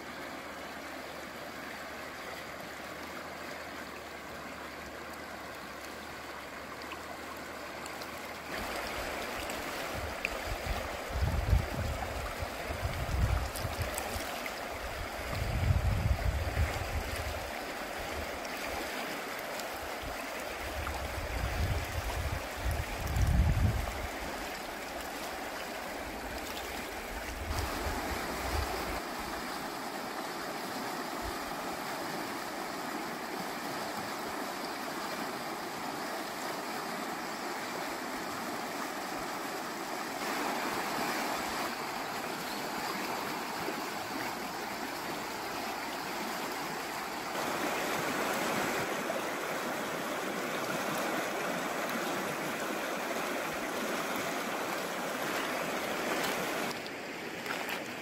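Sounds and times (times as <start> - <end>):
river water rushing: 0.0 - 58.0
wind buffeting microphone: 9.9 - 13.9, 14.8 - 17.4, 20.7 - 24.3.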